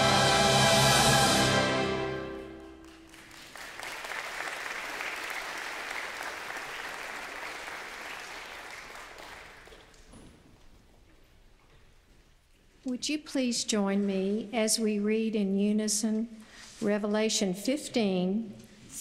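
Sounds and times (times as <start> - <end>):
choir and orchestra chord: 0.0 - 2.9
congregation applauding: 1.4 - 10.1.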